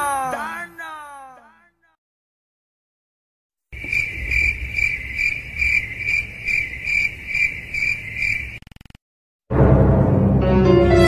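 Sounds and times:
crickets chirping: 3.7s - 9.0s.

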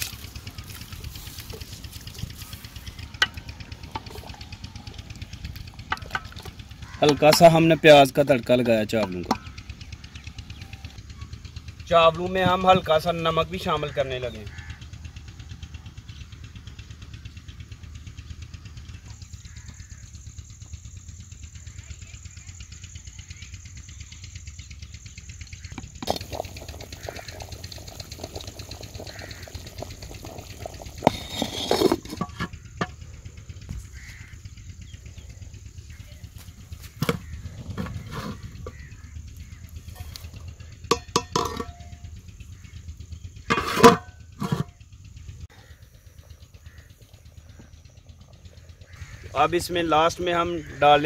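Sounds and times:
low engine hum: 0.0s - 51.0s
metal pot and lid clinking: 40.9s - 42.0s, 43.5s - 44.7s.

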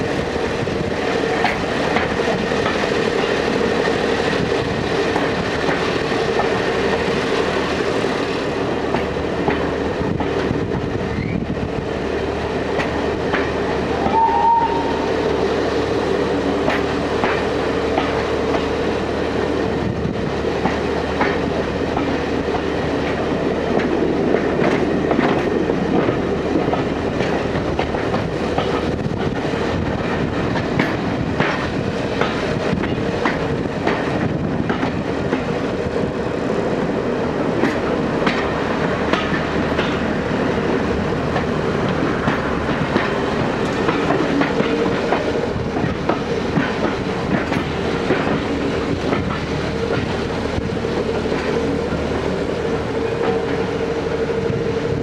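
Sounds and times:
train carriage rumble: 0.0s - 55.0s
wheels clacking over rails: 37.5s - 52.1s.

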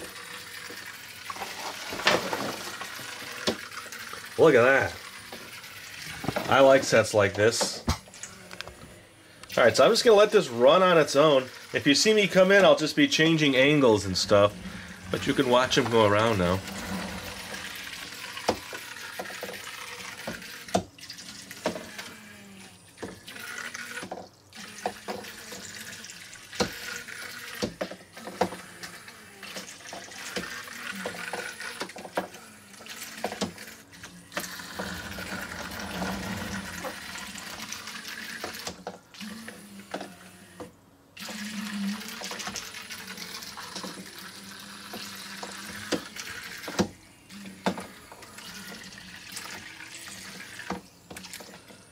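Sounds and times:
toy boat propellers splashing water: 10.7s - 40.2s, 41.2s - 46.8s.

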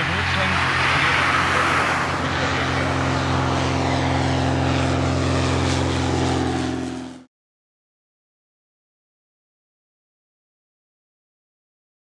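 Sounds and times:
light aircraft engine humming: 0.0s - 7.3s.

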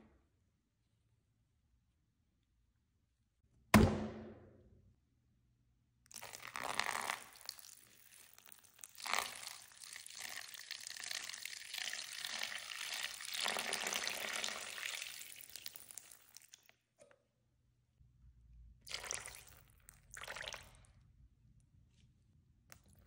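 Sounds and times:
coffee pouring into bowl: 6.1s - 16.6s, 18.9s - 20.9s.

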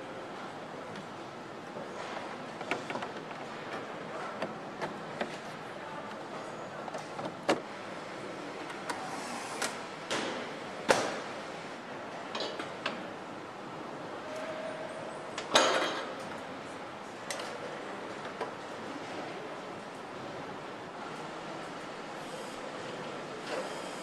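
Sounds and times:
factory background hum: 0.0s - 24.0s
clicks and clanks of tools: 12.3s - 13.0s.

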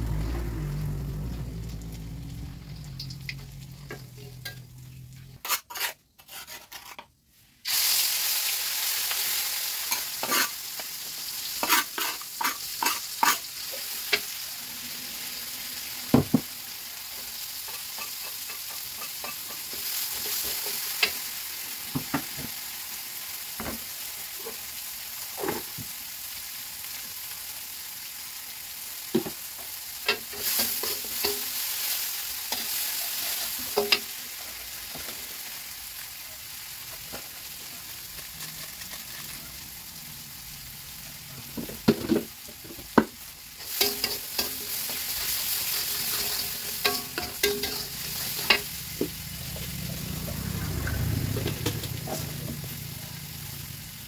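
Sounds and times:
food sizzling in a wok: 0.0s - 54.0s
metal spatula scraping wok: 3.0s - 7.1s, 9.1s - 10.8s, 11.5s - 15.3s, 17.4s - 21.3s, 30.0s - 35.5s, 43.5s - 53.6s.

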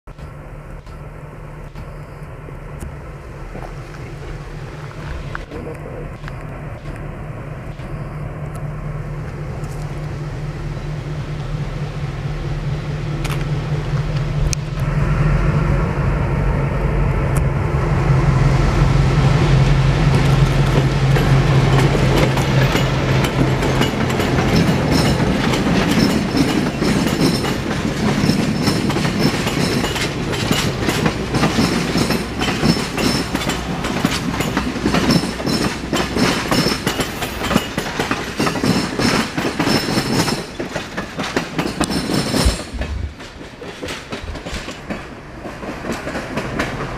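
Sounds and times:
diesel locomotive engine drone: 0.0s - 46.9s
train wheels clicking over rail joints: 19.6s - 46.9s.

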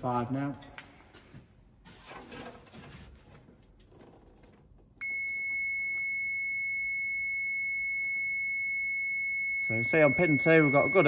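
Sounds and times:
multimeter continuity beep: 5.0s - 11.0s.

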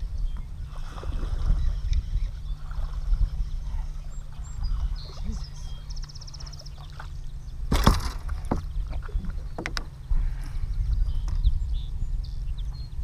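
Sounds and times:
wind rumbling on microphone: 0.0s - 13.0s
fish slapping aboard: 3.9s - 10.4s.

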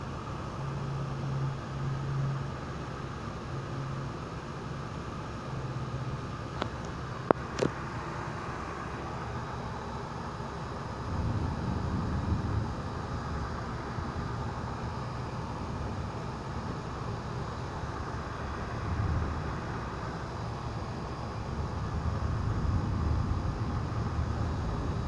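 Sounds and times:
rain hiss: 0.0s - 25.0s
thunder rumble: 10.8s - 25.0s.

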